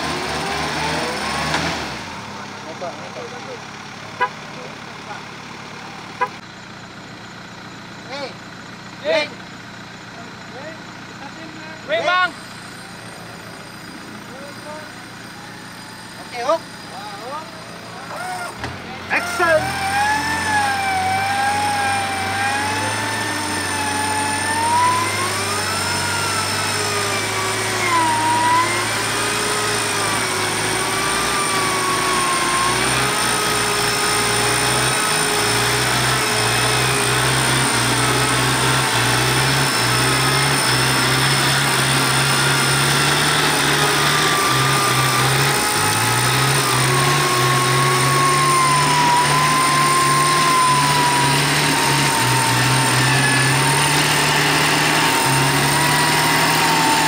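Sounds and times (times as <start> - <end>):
mechanical whine: 37.8 - 57.0.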